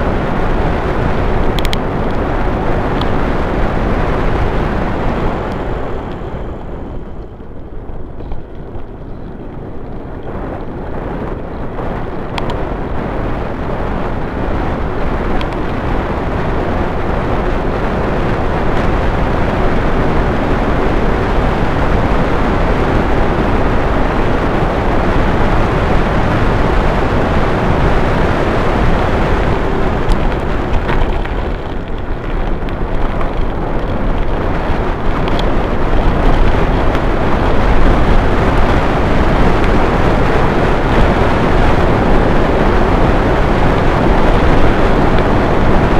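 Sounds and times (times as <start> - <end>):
tyre rumble on road: 0.0 - 45.9
wind rushing over microphone: 0.0 - 45.9.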